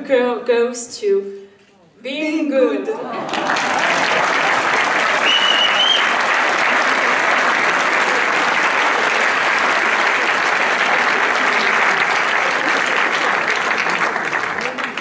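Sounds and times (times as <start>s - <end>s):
audience applauding: 3.2s - 15.0s
short high whistle: 5.2s - 6.1s.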